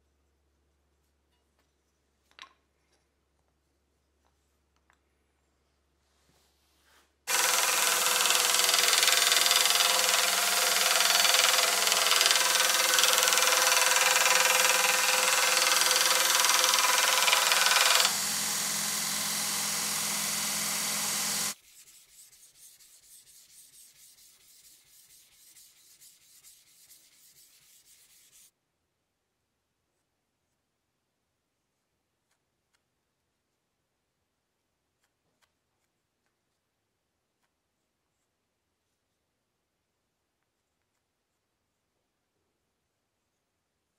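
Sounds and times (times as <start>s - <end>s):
belt grinder grinding steel: 7.3s - 21.6s
grinder motor humming: 7.3s - 21.6s
faint rapid rubbing strokes: 21.5s - 28.5s.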